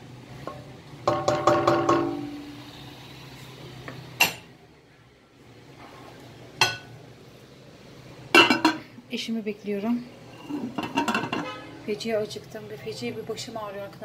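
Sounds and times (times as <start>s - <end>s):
spoon knocking metal pot: 0.5s - 2.3s, 8.4s - 8.8s, 10.8s - 11.6s.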